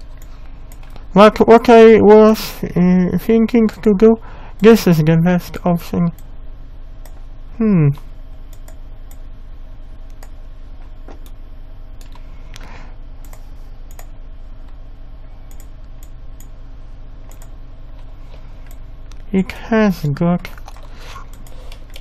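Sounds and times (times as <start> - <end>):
steady low hum: 0.0 - 22.0
keyboard and mouse clicks: 17.3 - 17.6, 20.6 - 22.0.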